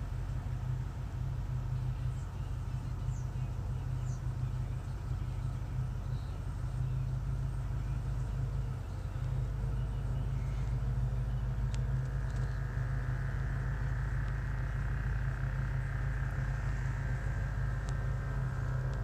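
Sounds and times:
vehicle engine idling: 0:00.0 - 0:19.0
faint ticks: 0:10.5 - 0:19.0.

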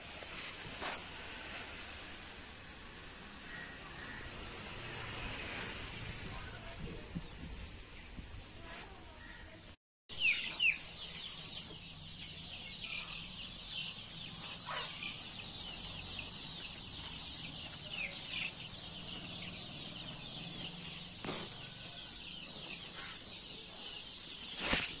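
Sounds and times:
birds chirping: 0:09.1 - 0:25.0.

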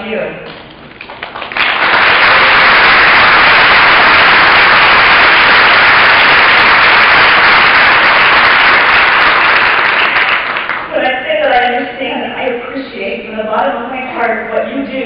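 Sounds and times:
audience applauding: 0:01.0 - 0:10.9.

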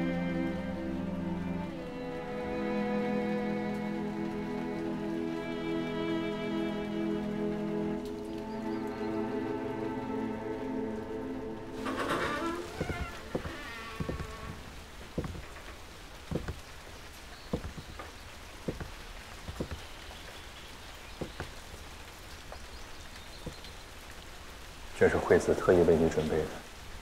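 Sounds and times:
steady soft hiss: 0:00.0 - 0:27.0
footsteps on wooden floorboards: 0:11.8 - 0:20.0, 0:21.2 - 0:21.6.

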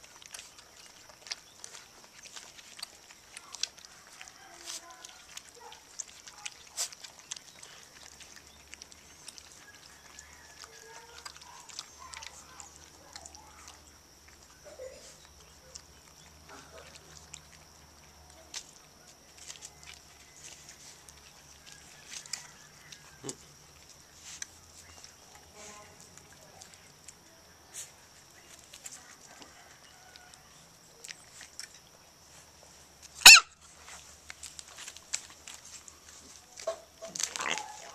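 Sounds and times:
puppies lapping milk: 0:00.0 - 0:37.9
puppy yelping: 0:33.2 - 0:33.6.

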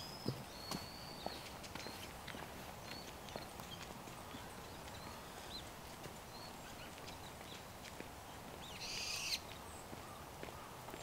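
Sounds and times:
songbirds chirping: 0:00.0 - 0:11.0
steady low hiss: 0:00.0 - 0:11.0.

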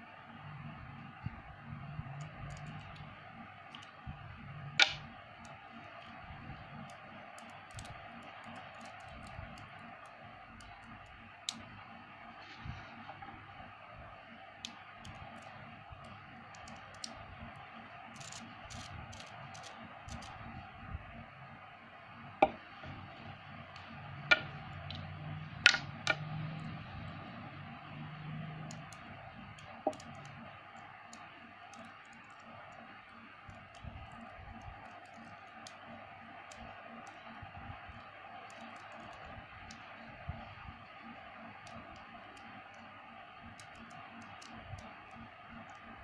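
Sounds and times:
faint steady background: 0:00.0 - 0:46.0
magnet balls clicking: 0:04.8 - 0:06.2, 0:06.8 - 0:11.7, 0:18.1 - 0:20.4, 0:28.3 - 0:32.8, 0:41.5 - 0:45.9.

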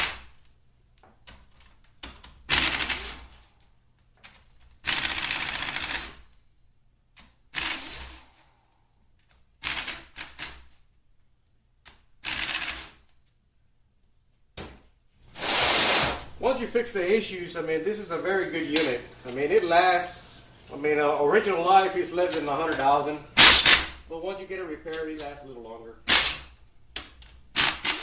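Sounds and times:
pneumatic wrench rattling bursts: 0:02.4 - 0:03.5, 0:04.8 - 0:06.2, 0:07.5 - 0:08.4, 0:09.6 - 0:10.6, 0:12.2 - 0:13.0, 0:23.4 - 0:24.0, 0:26.1 - 0:26.5, 0:27.5 - 0:28.0.

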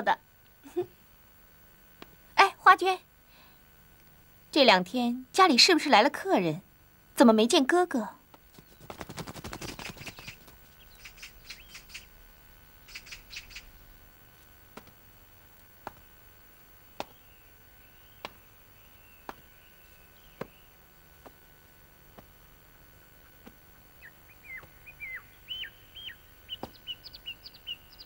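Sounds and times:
small birds chirping: 0:08.3 - 0:28.0
slow footsteps tapping: 0:14.3 - 0:25.6, 0:26.2 - 0:27.2.

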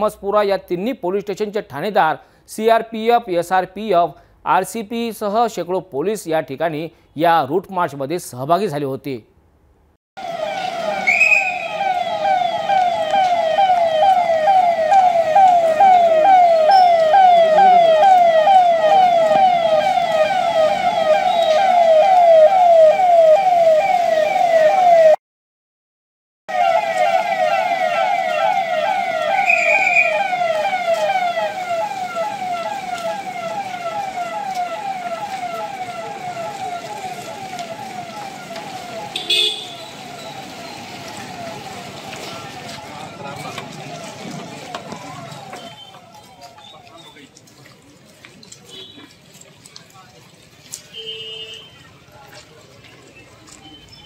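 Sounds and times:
police siren wailing: 0:10.2 - 0:25.2, 0:26.5 - 0:47.3.

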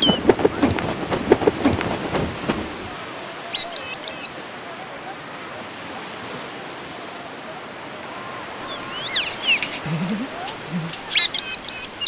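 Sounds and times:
small bird chirping: 0:00.0 - 0:00.9, 0:09.1 - 0:11.9
sea surf: 0:00.0 - 0:12.0.

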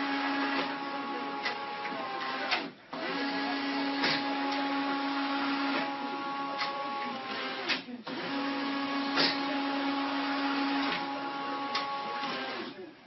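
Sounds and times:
printer humming and whirring: 0:00.0 - 0:12.9.

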